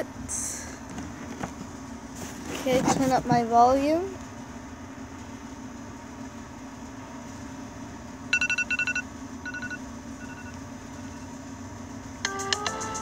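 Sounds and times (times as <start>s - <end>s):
low steady hum: 0.0s - 13.0s
smartphone beeps: 8.3s - 10.5s.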